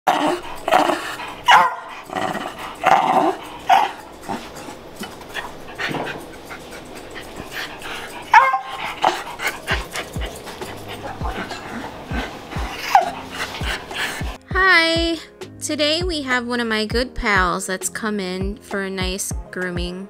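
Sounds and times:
small dog barking and yipping: 1.5 - 1.9, 3.7 - 4.0, 8.3 - 11.8, 12.8 - 13.3.

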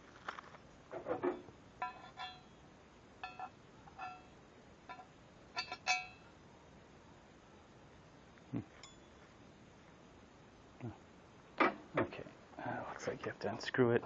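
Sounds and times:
metal rods clinking: 1.0 - 2.6, 3.2 - 4.3, 4.9 - 6.2.

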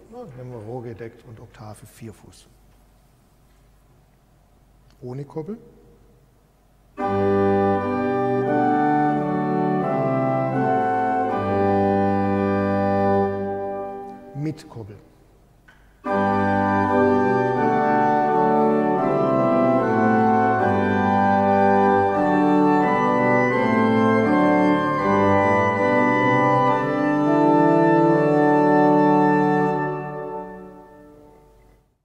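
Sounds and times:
pipe organ playing: 6.8 - 31.8.

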